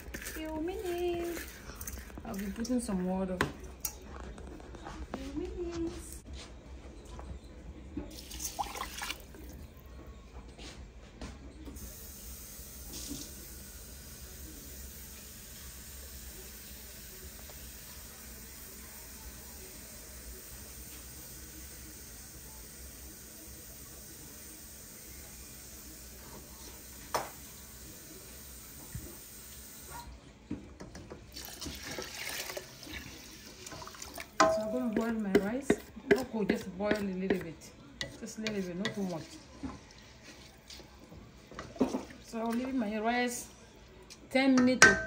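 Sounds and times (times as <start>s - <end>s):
water pouring into a pot: 8.1s - 9.6s, 31.3s - 34.6s.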